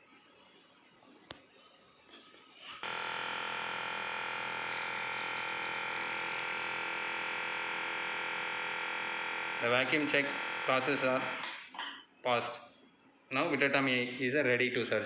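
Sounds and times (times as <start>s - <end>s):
vacuum pump humming: 2.8s - 11.5s.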